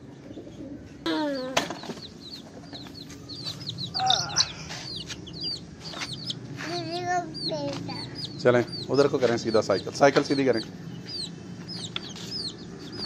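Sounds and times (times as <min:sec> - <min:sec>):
chicks peeping: 0:00.1 - 0:13.0
lower falling calls: 0:02.0 - 0:06.4.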